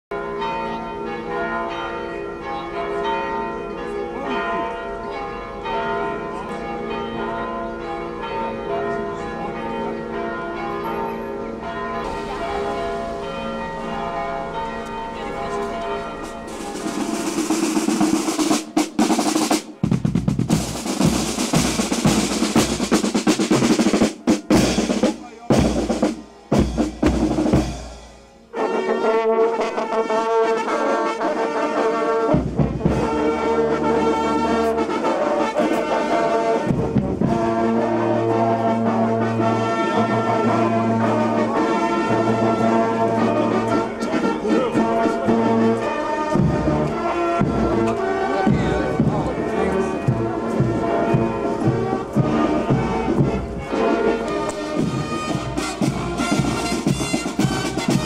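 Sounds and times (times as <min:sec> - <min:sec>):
church bells pealing: 0:00.1 - 0:19.9, 0:20.5 - 0:58.0
brass band playing: 0:12.0 - 0:58.0
snare drum roll: 0:16.5 - 0:28.2, 0:54.5 - 0:58.0.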